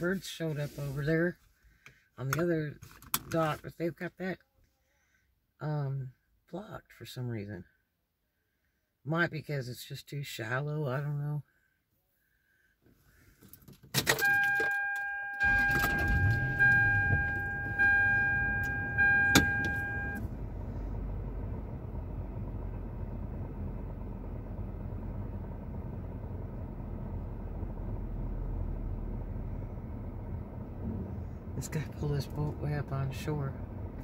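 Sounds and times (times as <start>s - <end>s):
car engine starting and idling: 13.0s - 34.0s
car keys jangling: 13.5s - 20.2s
car warning chime dinging: 14.1s - 20.3s.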